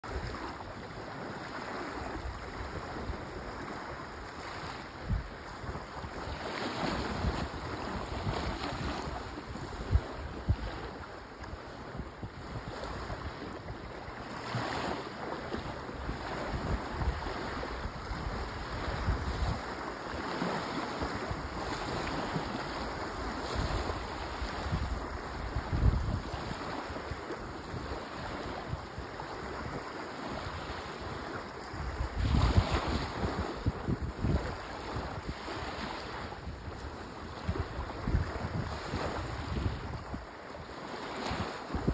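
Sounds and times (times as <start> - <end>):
waves lapping on sandy beach: 0.0 - 41.9
wind thumps on microphone: 4.5 - 13.6, 16.0 - 27.9, 31.6 - 40.2, 41.2 - 41.9.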